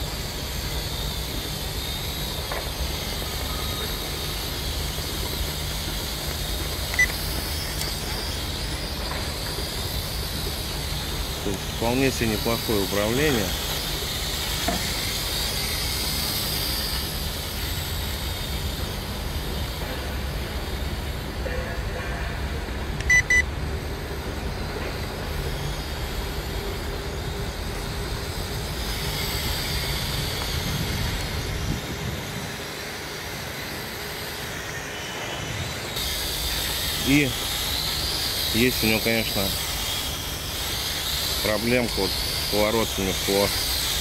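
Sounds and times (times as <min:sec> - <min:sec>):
toy drone propellers whirring: 0:00.0 - 0:44.0
short high beeps: 0:23.0 - 0:23.5
wind buffeting microphone: 0:29.0 - 0:33.7.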